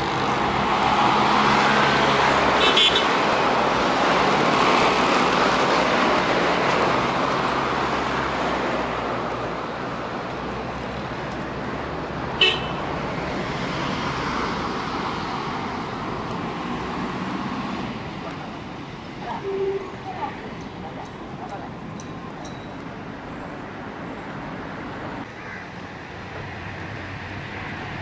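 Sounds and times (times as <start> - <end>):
vehicle engine and road noise: 0.0 - 28.0
car horn toot: 2.6 - 3.1, 12.4 - 12.8.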